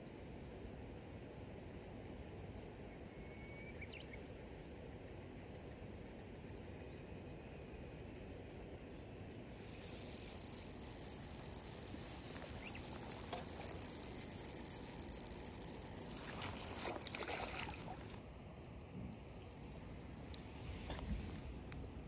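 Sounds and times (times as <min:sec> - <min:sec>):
fishing reel whirring: 0:09.6 - 0:18.2
fish splashing in water: 0:09.8 - 0:18.2.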